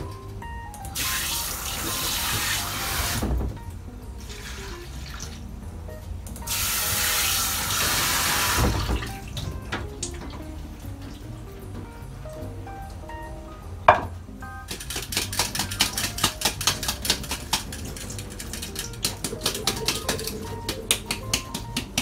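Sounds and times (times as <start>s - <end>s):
tap water running into sink: 0.9s - 3.5s, 6.4s - 11.6s, 14.7s - 22.0s
dull knock: 13.9s - 14.2s.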